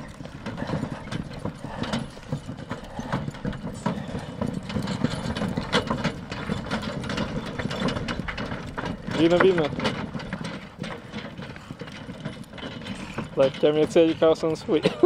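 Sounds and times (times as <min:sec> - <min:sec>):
cart rattling and knocking: 0:00.0 - 0:15.0
horse hooves clopping: 0:00.0 - 0:15.0.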